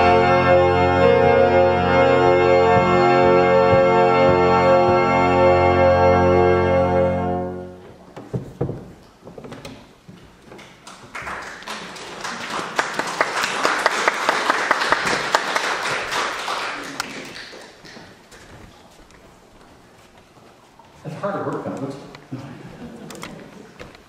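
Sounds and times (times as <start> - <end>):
organ chord: 0.0 - 7.8
audience applauding: 10.6 - 18.5.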